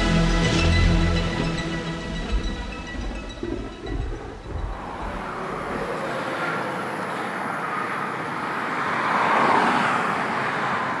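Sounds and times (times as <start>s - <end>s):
low rumble: 1.2s - 6.0s
steady rushing noise: 1.6s - 9.0s.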